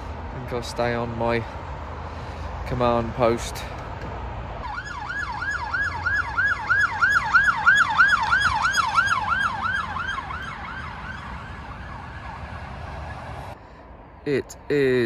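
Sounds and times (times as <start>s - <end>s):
road traffic rumble: 0.0s - 15.0s
emergency siren yelping: 4.6s - 13.6s.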